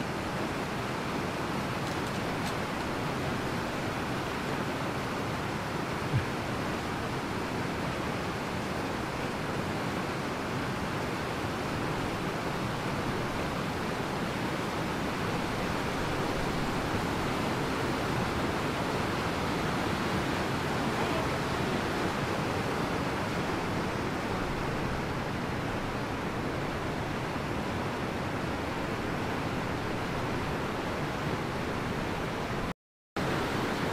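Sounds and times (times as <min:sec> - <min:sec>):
stream rapids rushing: 0:00.0 - 0:33.9.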